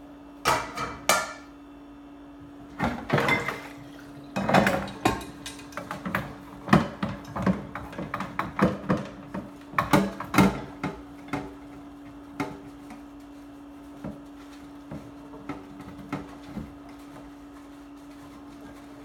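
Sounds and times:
dishes clinking in a sink: 0.5 - 1.5, 2.8 - 11.5.

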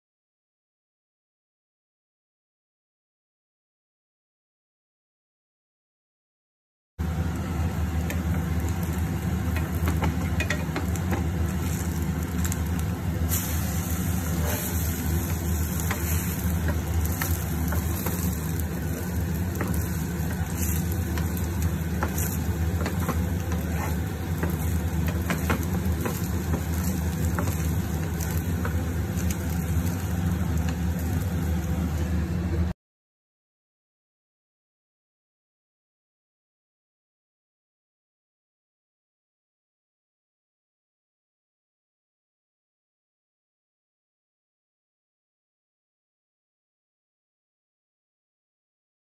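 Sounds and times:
bread sizzling in a pan: 7.0 - 32.3
steady low hum: 7.0 - 32.8
spatula scraping and tapping pan: 9.5 - 12.6, 13.3 - 31.2.

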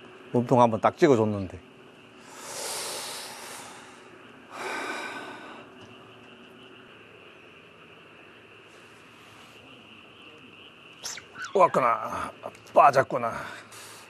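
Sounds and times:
man exhaling breathily: 2.2 - 5.7.

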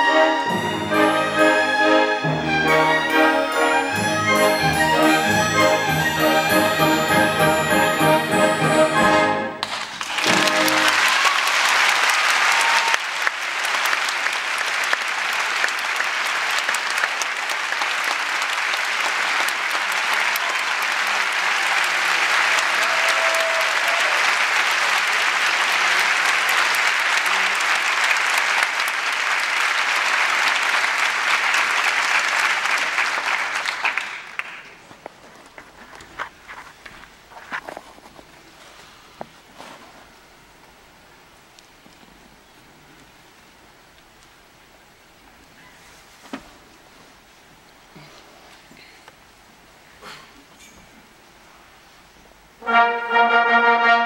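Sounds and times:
orchestra final notes: 0.0 - 11.1, 52.6 - 54.0
audience applauding: 0.0 - 34.9.

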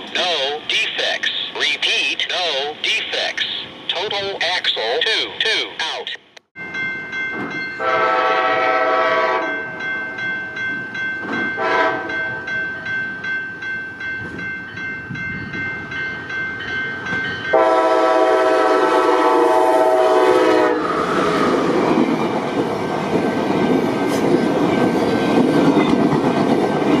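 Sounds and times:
train wheel and rail noise: 0.0 - 27.0
train horn blasts: 7.8 - 9.7, 11.6 - 12.4, 17.5 - 21.5.

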